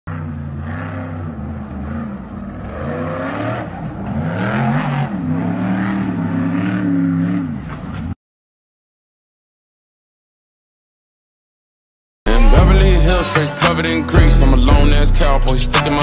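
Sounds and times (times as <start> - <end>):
truck engine revving hard: 0.1 - 8.1.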